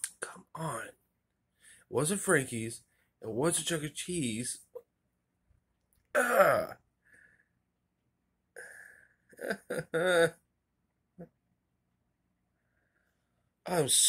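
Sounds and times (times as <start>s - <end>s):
man groaning: 6.2s - 6.8s, 9.4s - 10.4s
man grunting: 6.2s - 6.8s, 9.4s - 10.4s.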